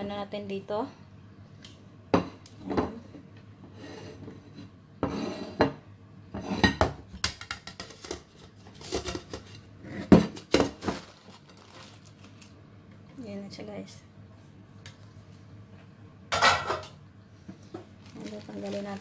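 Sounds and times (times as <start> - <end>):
plate and pan clattering: 16.3 - 16.9.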